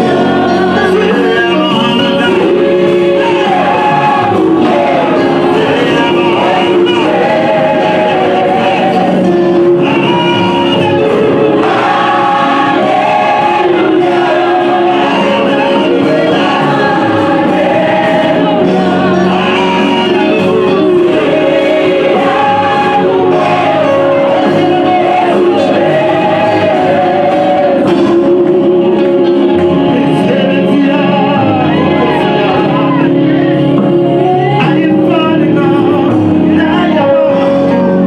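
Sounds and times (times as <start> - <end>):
backing vocalists singing: 0.0 - 38.0
man singing into microphone: 0.0 - 38.0.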